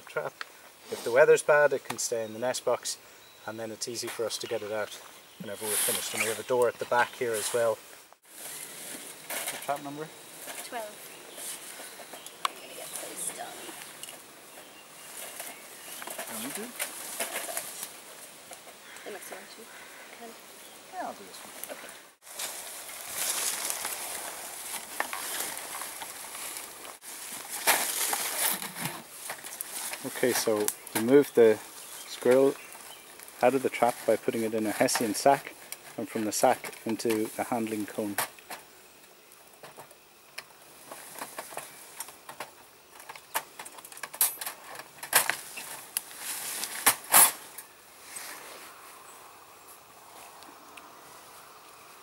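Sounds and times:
sack rustling: 22.2 - 30.7, 45.4 - 48.5.

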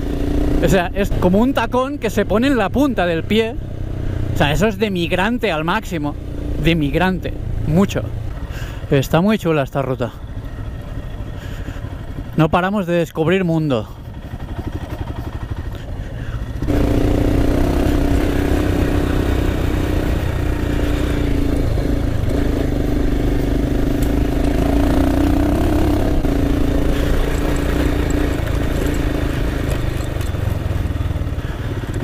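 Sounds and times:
motorcycle engine pulling: 14.0 - 32.0.

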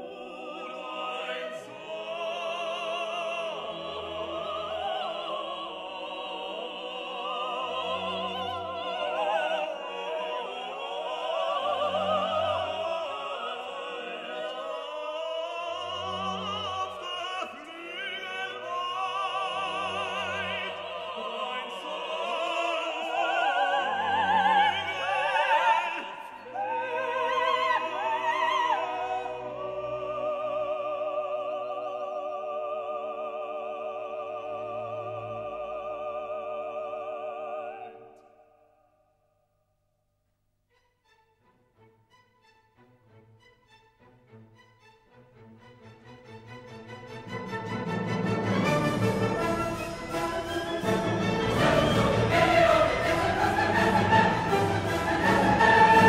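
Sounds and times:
operatic singing: 0.0 - 38.7, 44.0 - 56.0
orchestra playing: 40.7 - 56.0.

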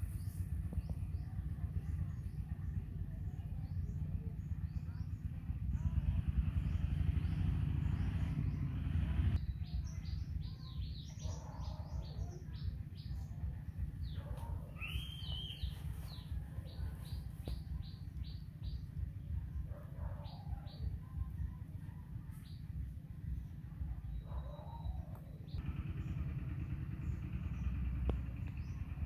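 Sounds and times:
small birds chirping: 0.0 - 29.0
steady low noise: 12.2 - 29.0.

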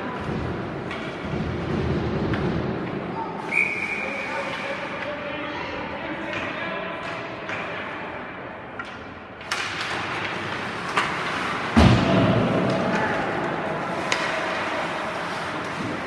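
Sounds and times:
skates and sticks on ice: 0.0 - 5.6, 8.8 - 16.0
hockey stick clack: 0.1 - 3.0, 6.2 - 7.9, 8.7 - 16.0.

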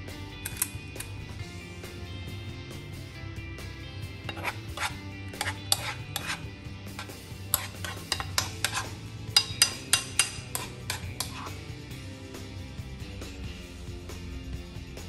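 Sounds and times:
background music: 0.0 - 15.0
metal utensil scraping frying pan: 0.4 - 1.2, 4.2 - 11.7.

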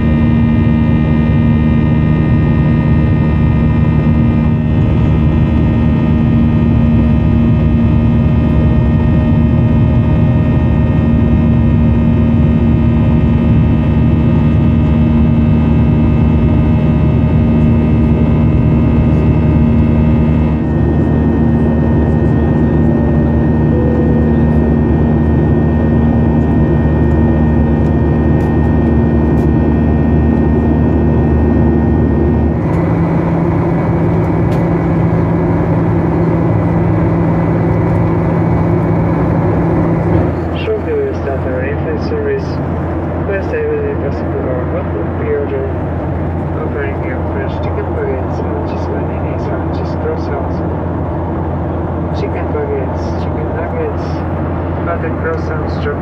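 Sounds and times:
jet engines droning: 0.0 - 56.0
airflow rumble: 15.4 - 56.0
engine whining tones: 15.8 - 43.5.

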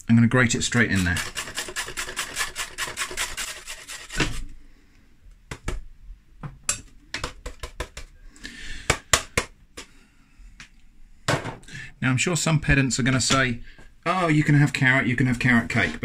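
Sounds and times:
carrot rasping on a grater: 0.7 - 4.4.

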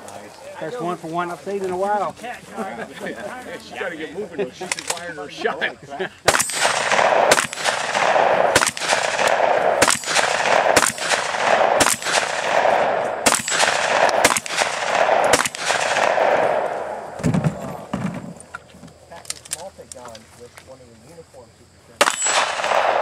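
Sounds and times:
gunshots with long echo: 6.3 - 18.0, 22.0 - 23.0
low thud: 17.1 - 18.4.

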